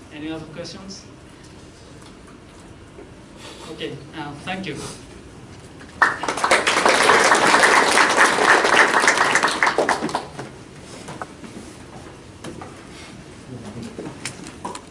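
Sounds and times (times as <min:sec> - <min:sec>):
audience applauding: 0:06.0 - 0:10.4.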